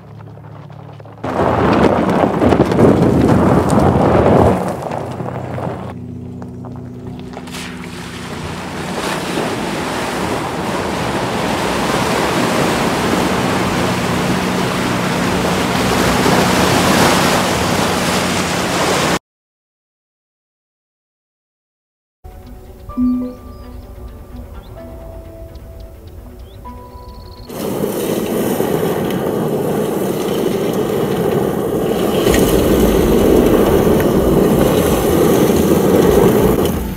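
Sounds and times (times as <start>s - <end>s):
muddy water splashing around tyres: 0.0s - 19.2s, 27.5s - 36.9s
low rumble: 22.4s - 36.9s.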